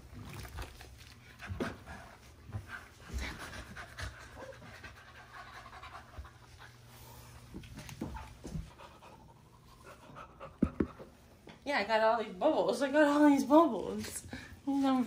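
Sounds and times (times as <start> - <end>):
chimpanzee panting: 1.5 - 6.9.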